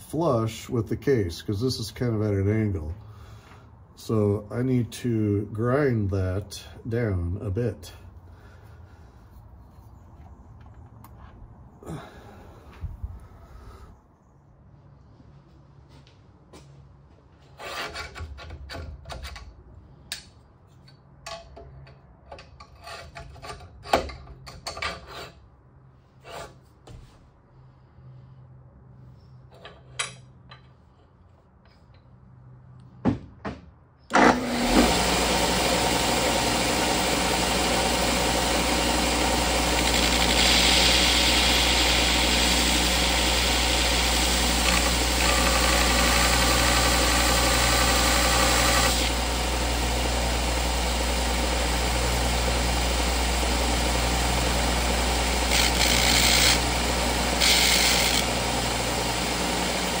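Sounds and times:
electric grinder running: 34.1 - 60.0
steel grinding on wheel: 34.5 - 49.2, 55.1 - 59.3.

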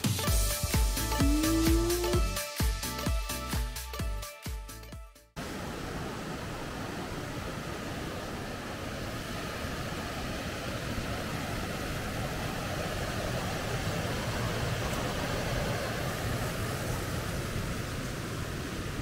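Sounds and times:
stream rushing over rocks: 5.4 - 19.0.

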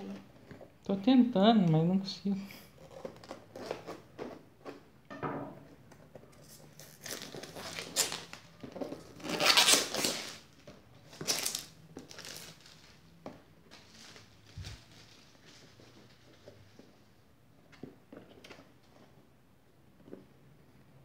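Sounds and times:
plastic shrink wrap crinkling: 6.2 - 16.8.

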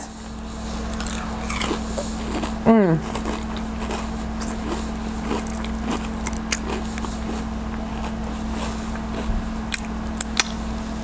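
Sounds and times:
soft chewing clicks: 0.9 - 10.6.

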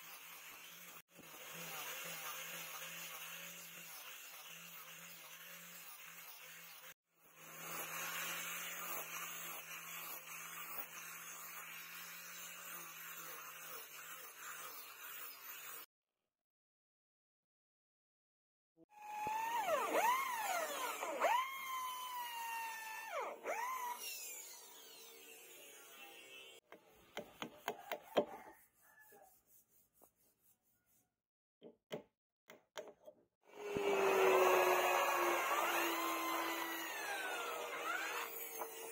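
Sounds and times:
angle grinder sanding wood: 0.0 - 15.9, 19.0 - 26.6, 33.5 - 38.9
power tool running: 19.0 - 26.6, 33.5 - 38.9.

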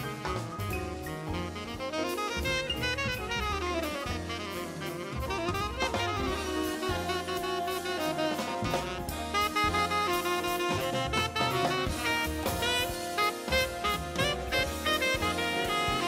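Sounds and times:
big band jazz: 0.0 - 16.0.

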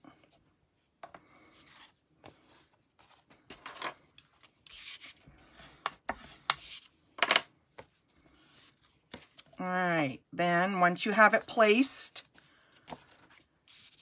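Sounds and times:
paper rustling and scuffing: 12.4 - 14.0.

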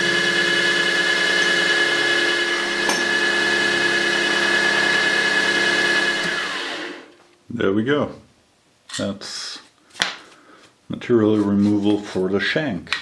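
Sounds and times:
milling spindle whine: 0.0 - 6.6.

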